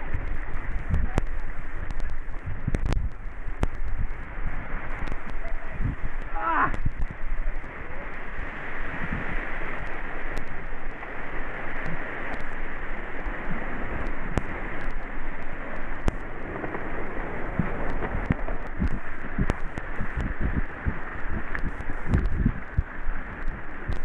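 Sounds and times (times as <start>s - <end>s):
low thumps on microphone: 0.0s - 7.3s, 17.5s - 24.0s
rushing whitewater: 0.0s - 24.0s
small clicks on microphone: 0.2s - 4.2s, 4.9s - 5.5s, 14.0s - 16.3s, 17.6s - 24.0s.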